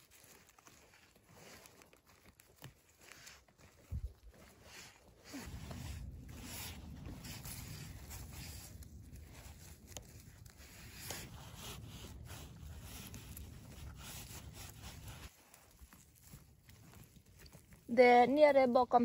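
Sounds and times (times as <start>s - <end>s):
pine needles and twigs rustling: 0.0s - 19.0s
low steady rumble: 5.2s - 19.0s.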